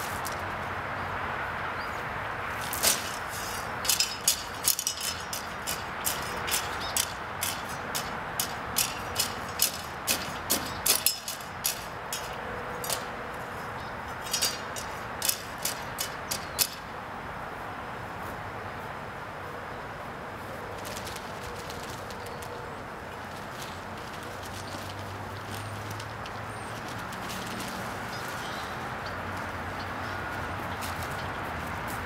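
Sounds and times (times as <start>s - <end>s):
broom sweeping the ground: 0.0s - 0.5s, 2.5s - 11.1s, 30.4s - 32.0s.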